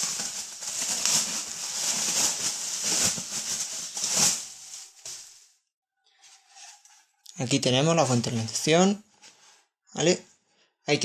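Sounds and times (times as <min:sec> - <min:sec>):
plastic wrap rustling: 0:00.0 - 0:05.6.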